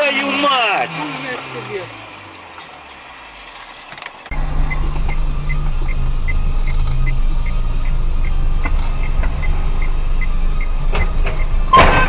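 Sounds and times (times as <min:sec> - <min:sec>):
car engine hum from cabin: 0:00.1 - 0:12.0
light even ticking: 0:04.3 - 0:11.7.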